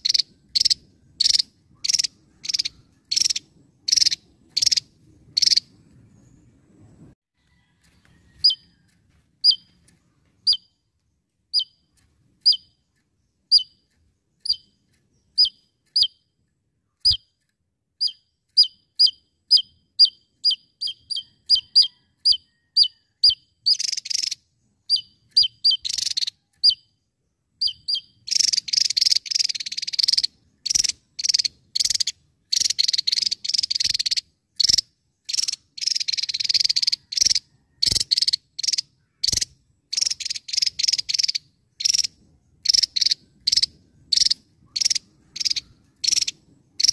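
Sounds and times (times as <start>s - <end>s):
buzzy rattling bird calls: 0.0s - 5.8s, 18.0s - 26.8s, 27.6s - 46.9s.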